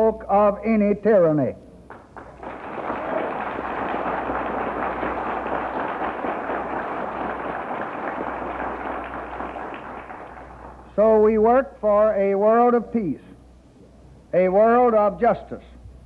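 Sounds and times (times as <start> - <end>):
audience applauding: 1.9 - 11.0.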